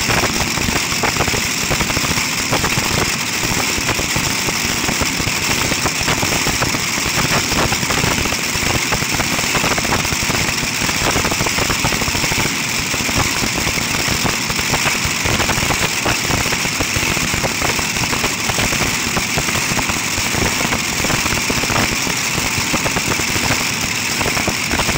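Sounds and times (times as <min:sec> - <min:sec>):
loud engines idling: 0:00.0 - 0:24.9.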